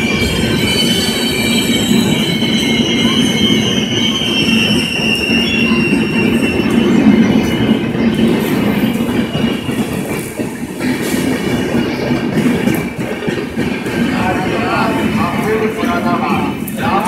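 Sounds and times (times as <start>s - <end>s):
high-pitched wheel squeal: 0.0s - 10.0s
train wheels rumbling on rail: 0.0s - 17.0s.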